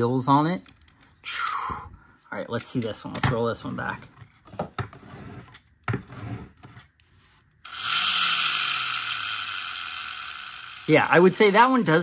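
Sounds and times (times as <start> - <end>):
toy car scrapes and clicks: 4.9 - 11.4
toy motor whirring: 7.6 - 12.0.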